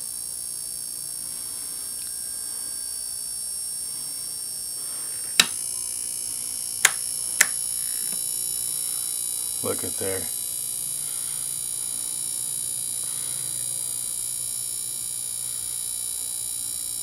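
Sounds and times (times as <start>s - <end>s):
high-pitched electrical whine: 0.0s - 17.0s
sharp clicks: 5.4s - 5.6s.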